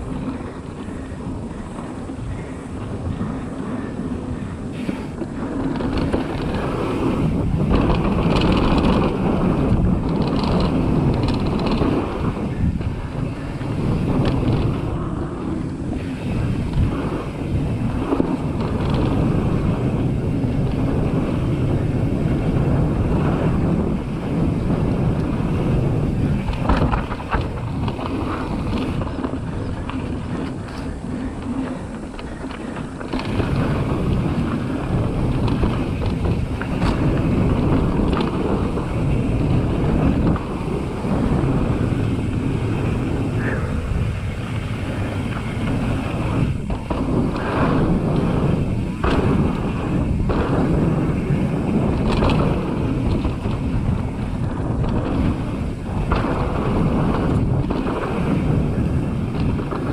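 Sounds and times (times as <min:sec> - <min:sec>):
bike knocks and rattles: 0:00.0 - 0:59.9
tyres rumbling on dirt: 0:00.0 - 0:59.9
wind buffeting microphone: 0:00.0 - 0:59.9.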